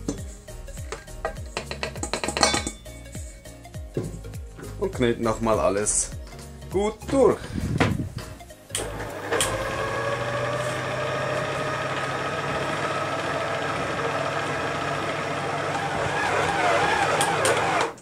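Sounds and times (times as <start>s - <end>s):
stand mixer motor whining: 8.8s - 18.0s.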